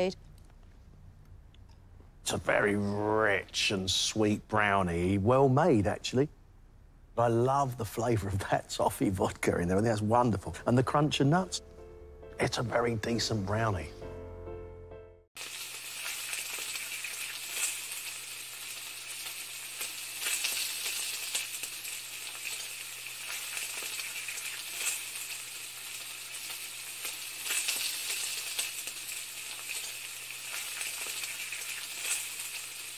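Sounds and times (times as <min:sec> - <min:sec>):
food sizzling in a pan: 0:15.4 - 0:32.9.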